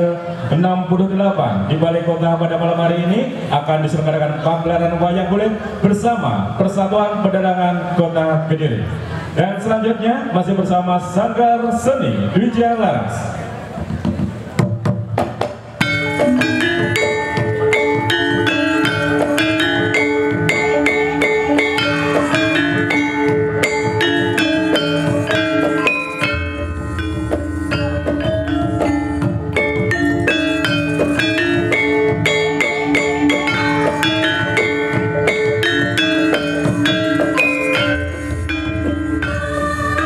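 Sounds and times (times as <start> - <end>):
gamelan ensemble playing: 0.0 - 13.8, 15.0 - 40.0
hand drums: 13.8 - 40.0.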